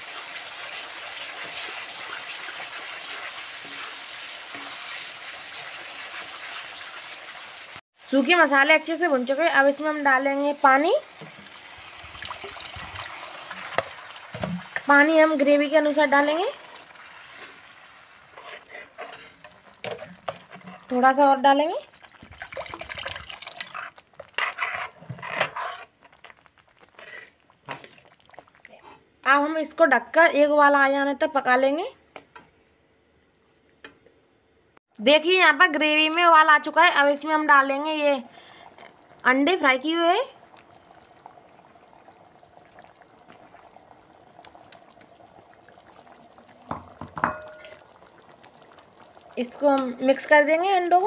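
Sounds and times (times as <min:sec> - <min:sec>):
ladle stirring and sloshing gravy: 0:00.0 - 0:07.6, 0:11.1 - 0:21.1, 0:21.8 - 0:29.1, 0:40.4 - 0:49.4
water pouring into pan: 0:00.0 - 0:07.8, 0:08.8 - 0:28.8, 0:37.4 - 0:51.0
curry bubbling in a pot: 0:00.0 - 0:29.7, 0:36.6 - 0:51.0.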